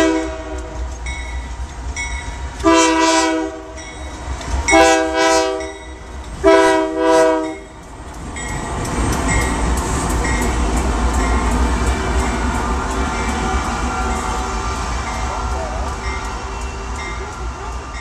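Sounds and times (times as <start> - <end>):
locomotive air horn blasts: 0.0 - 0.8, 2.6 - 3.8, 4.7 - 5.8, 6.4 - 7.7
rumble of passing train: 0.0 - 18.0.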